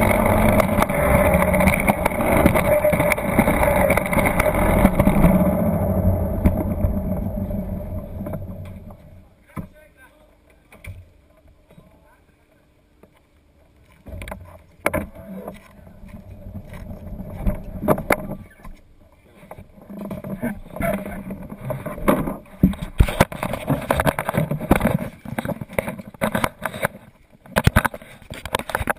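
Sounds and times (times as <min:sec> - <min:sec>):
plastic sled knocking and rattling: 0:00.0 - 0:09.8, 0:14.1 - 0:18.7, 0:19.5 - 0:28.9.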